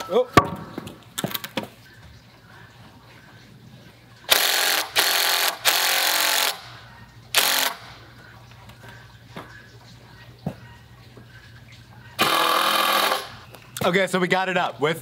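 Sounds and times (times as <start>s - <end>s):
impact driver driving screws into wood: 12.2s - 13.3s.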